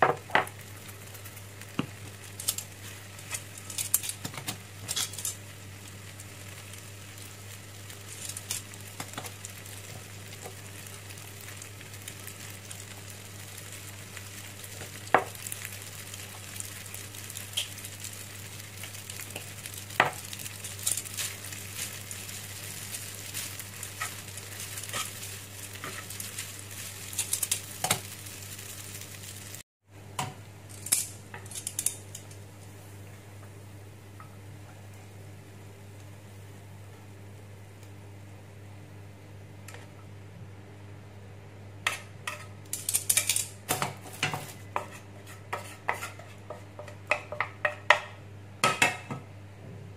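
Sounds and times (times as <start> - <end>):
spaghetti sizzling in frying pan: 0.0 - 33.2, 41.8 - 49.1
metal tongs clicking and scraping: 30.7 - 32.3, 41.9 - 43.6.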